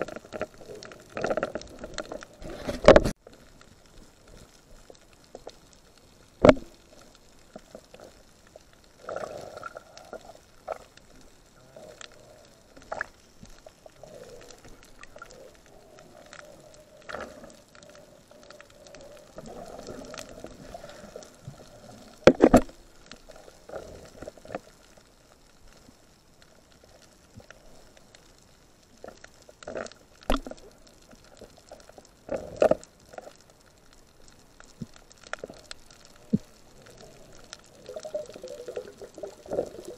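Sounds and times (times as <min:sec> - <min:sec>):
muffled underwater water noise: 0:00.0 - 0:39.9
soft bubbling: 0:00.0 - 0:39.9
sharp knocks underwater: 0:06.4 - 0:06.7.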